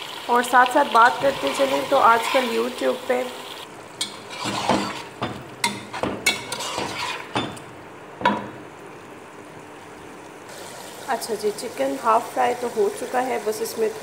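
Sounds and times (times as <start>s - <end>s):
frying sizzle: 0.0s - 14.0s
metal spatula scraping pot: 1.2s - 2.8s, 4.0s - 7.4s.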